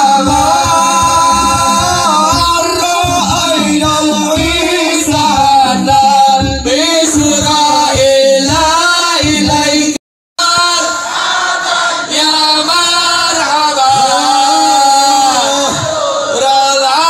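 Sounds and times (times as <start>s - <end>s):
low beats: 0.0s - 10.0s
men singing devotional chant: 0.0s - 17.0s.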